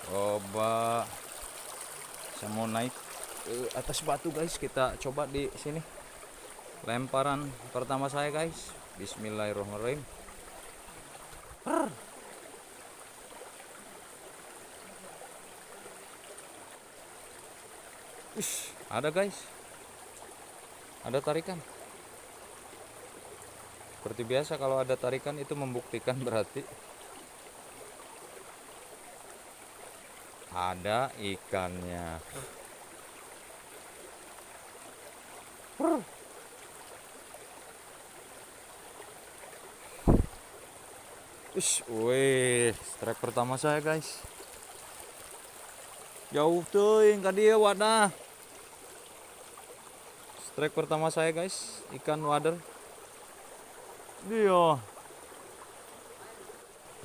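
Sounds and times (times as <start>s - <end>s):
stream flowing: 0.0s - 57.0s
person short vocal sound: 11.6s - 12.0s, 35.8s - 36.1s.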